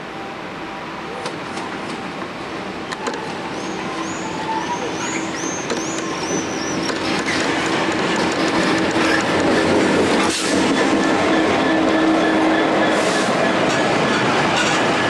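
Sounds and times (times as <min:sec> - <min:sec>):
train hum: 0:00.0 - 0:15.0.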